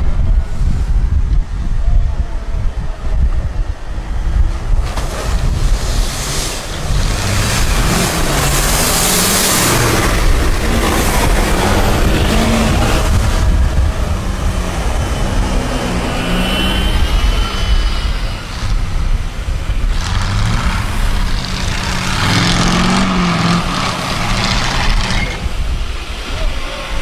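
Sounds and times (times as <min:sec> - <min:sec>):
truck engines revving hard: 0:04.4 - 0:26.2.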